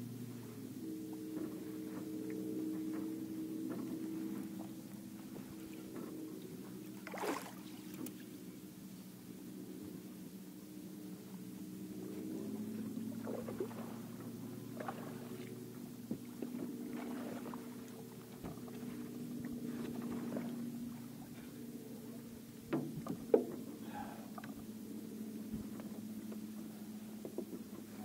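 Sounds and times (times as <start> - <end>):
electric trolling motor humming: 0.0 - 28.0
knocks and scrapes on boat: 1.2 - 6.8, 12.1 - 21.7, 22.6 - 23.8, 25.5 - 28.0.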